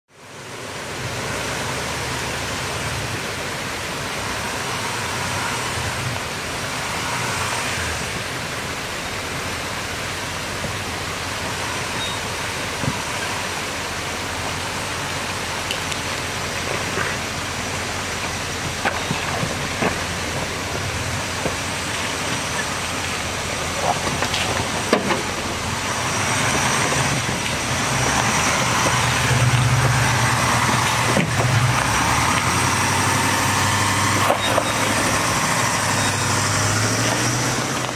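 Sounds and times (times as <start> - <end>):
creek water rushing over rocks: 0.1 - 37.9
truck engine running: 8.6 - 37.9.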